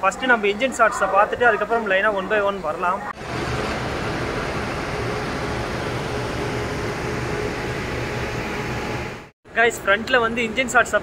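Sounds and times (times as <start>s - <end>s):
locomotive cooling blowers rushing: 1.3s - 9.3s.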